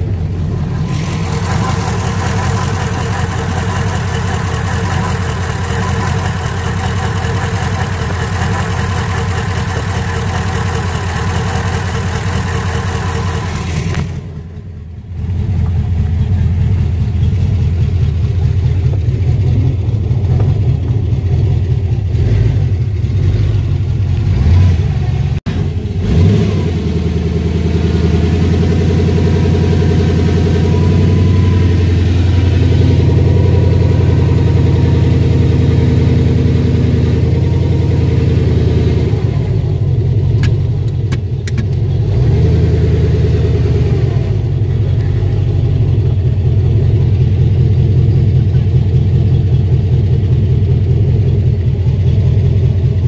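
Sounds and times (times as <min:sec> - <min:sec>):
car engine idling: 0:00.0 - 0:26.0, 0:26.7 - 0:42.2, 0:42.8 - 0:53.0.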